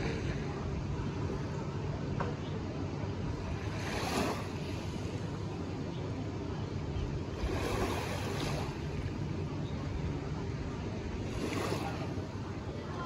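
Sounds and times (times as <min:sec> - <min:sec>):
wind rumble on microphone: 0:00.0 - 0:13.0
small waves lapping shore: 0:03.2 - 0:13.0.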